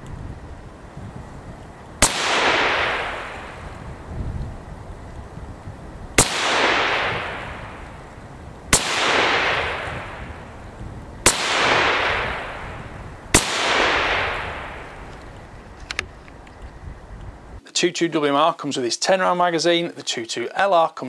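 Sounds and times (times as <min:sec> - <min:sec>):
rifle shots with echo: 0:02.0 - 0:03.7, 0:06.2 - 0:08.0, 0:08.7 - 0:10.6, 0:11.2 - 0:15.1.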